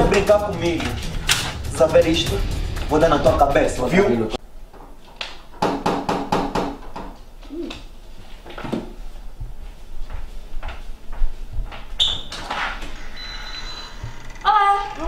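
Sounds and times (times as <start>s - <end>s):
door opening: 0.0s - 1.8s, 11.9s - 15.0s
footsteps: 7.4s - 13.0s.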